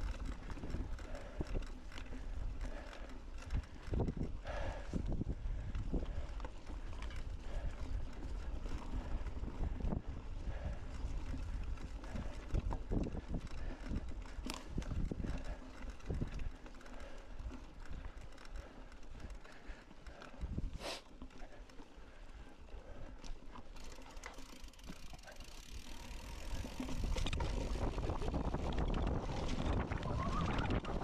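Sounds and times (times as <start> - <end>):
bike rattling and knocking: 0.0 - 31.0
wind on microphone: 26.5 - 31.0.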